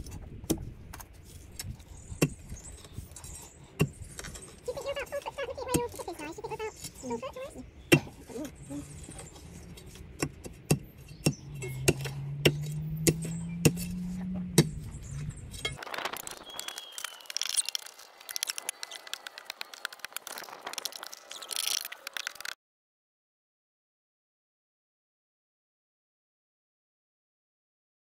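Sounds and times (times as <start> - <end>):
digging tool clinking on stones: 8.0 - 21.8.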